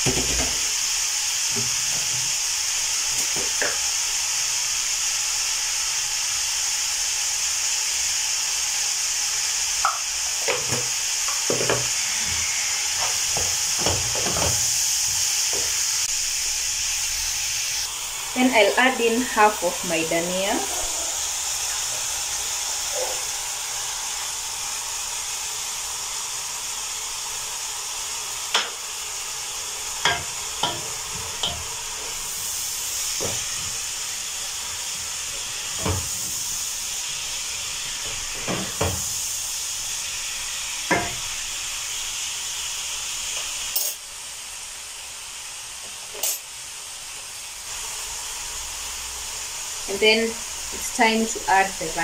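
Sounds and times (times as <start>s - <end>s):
wooden spatula knocking a pan: 0.0s - 0.6s, 9.8s - 11.9s
vegetables sizzling in a pan: 0.0s - 52.0s.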